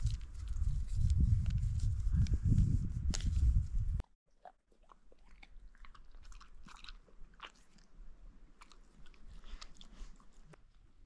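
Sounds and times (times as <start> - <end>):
dog crunching and chewing food: 4.4 - 7.9.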